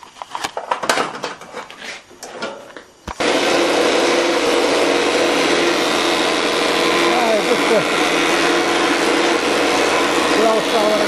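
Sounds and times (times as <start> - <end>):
planer machine running: 3.2 - 11.0.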